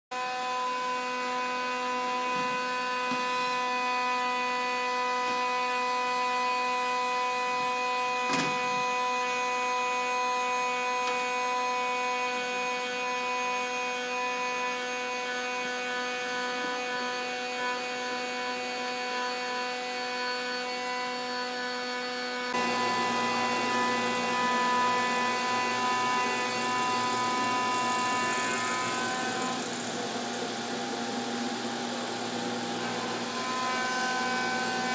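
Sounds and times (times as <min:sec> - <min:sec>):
disc sander sanding wood: 0:08.8 - 0:34.9
machine hum: 0:22.5 - 0:34.9.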